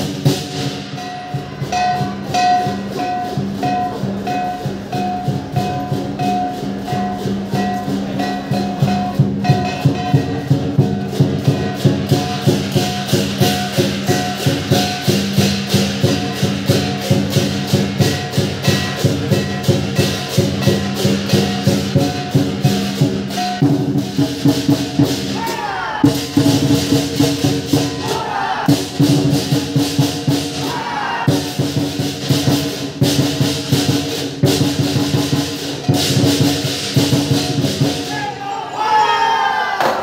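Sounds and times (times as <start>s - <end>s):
drum beating: 0.0s - 38.5s, 39.6s - 40.0s
cymbals clashing: 0.0s - 40.0s.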